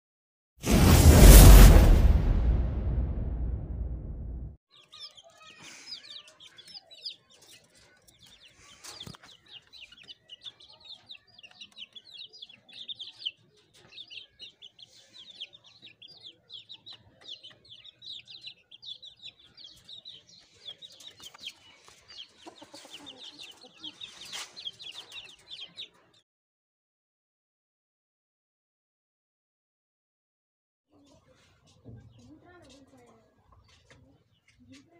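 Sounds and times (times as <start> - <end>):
intro whoosh: 0.6 - 4.6
chicks peeping: 4.7 - 26.2.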